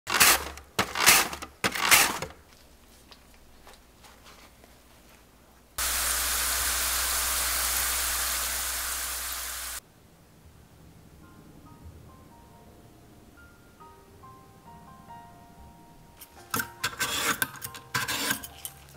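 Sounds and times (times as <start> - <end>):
faint handling sounds: 2.3 - 5.7
slices sizzling in hot oil: 5.8 - 9.8
mandoline slicer strokes: 16.8 - 18.9.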